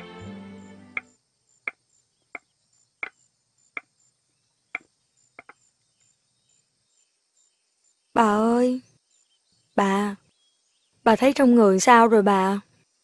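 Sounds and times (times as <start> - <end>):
soft background music: 0.0 - 1.2.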